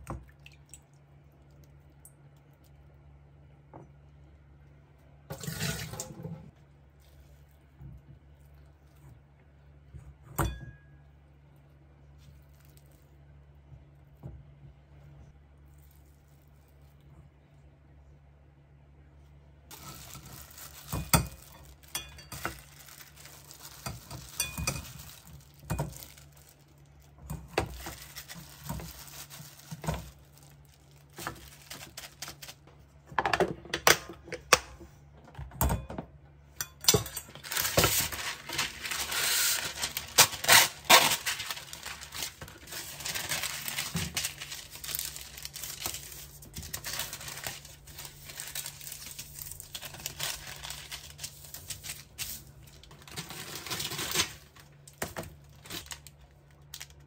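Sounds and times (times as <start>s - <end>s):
plastic and paper crinkling: 12.1s - 13.2s, 15.6s - 17.2s, 19.7s - 32.8s, 37.3s - 57.0s.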